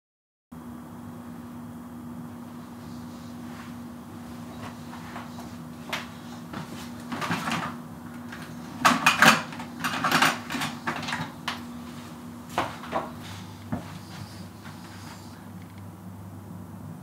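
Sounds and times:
items clattering on wire shelf: 4.4s - 13.4s.

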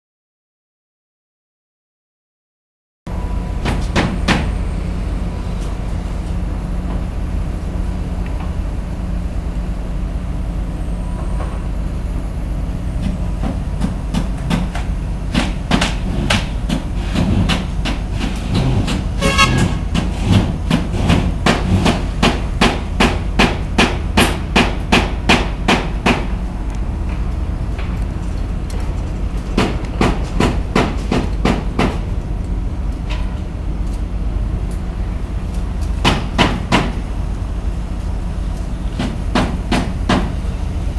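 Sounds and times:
low rumble of site noise: 3.1s - 40.9s
hammer blows: 13.0s - 26.4s.

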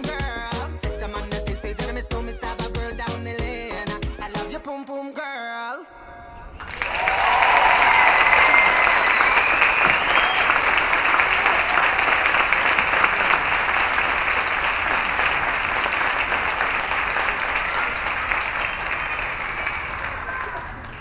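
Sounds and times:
audience applauding: 6.6s - 21.0s.

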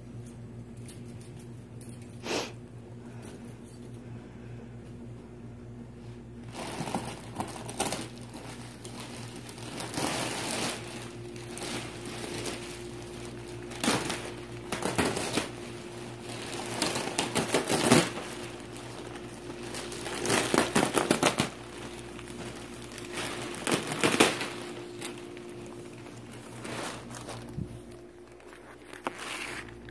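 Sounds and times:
plastic wrapping crinkling: 6.4s - 29.9s.

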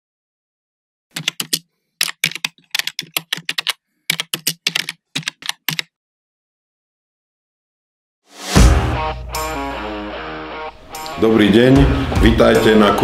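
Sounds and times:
keystroke clicks: 1.1s - 5.9s.

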